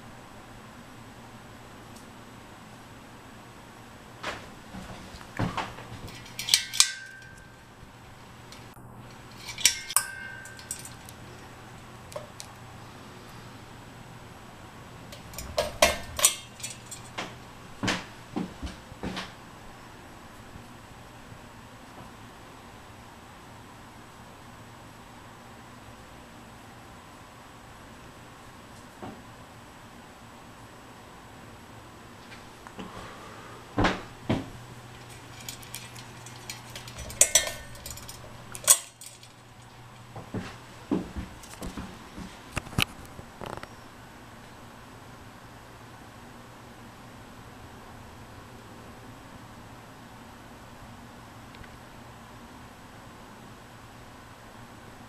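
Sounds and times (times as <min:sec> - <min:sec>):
fan motor hum: 0:00.0 - 0:55.0
glass bowl clinking on metal fittings: 0:06.1 - 0:07.6, 0:09.1 - 0:11.2, 0:15.1 - 0:17.2, 0:35.0 - 0:39.4
metal ball chain jingling: 0:09.2 - 0:11.2, 0:35.0 - 0:39.6
pull chain switch clicking: 0:15.1 - 0:17.2.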